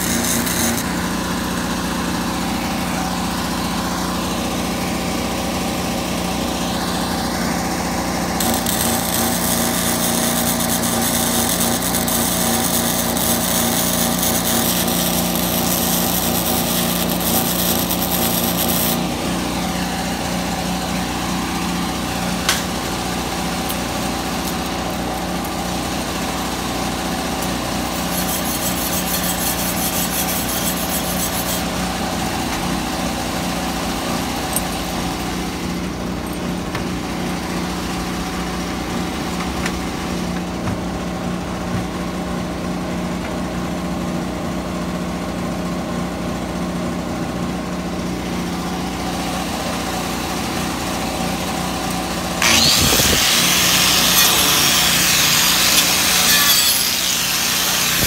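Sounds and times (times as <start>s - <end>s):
welding arc crackling: 0.0s - 1.2s, 8.4s - 19.5s, 27.3s - 31.7s, 52.4s - 58.0s
steady engine-like hum: 0.0s - 52.9s.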